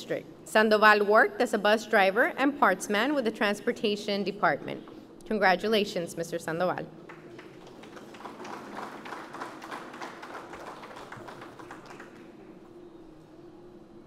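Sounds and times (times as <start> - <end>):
audience applauding: 7.0 - 12.4.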